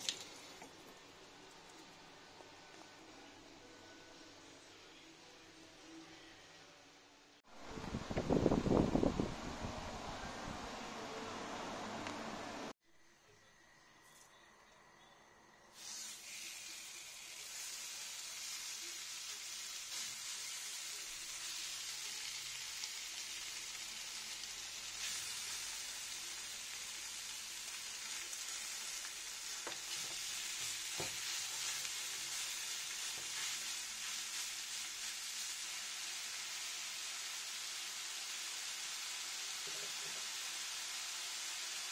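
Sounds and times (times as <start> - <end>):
meat sizzling in a frying pan: 15.8 - 41.9.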